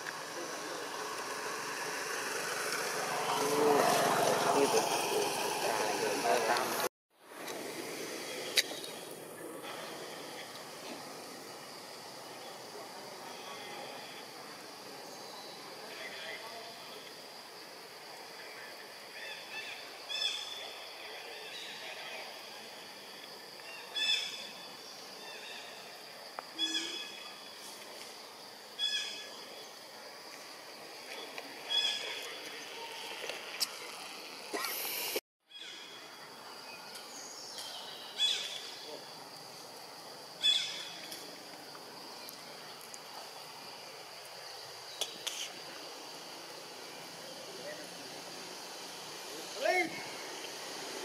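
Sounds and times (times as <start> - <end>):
high-pitched insect drone: 0.0 - 6.9
faint outdoor background: 0.0 - 51.0.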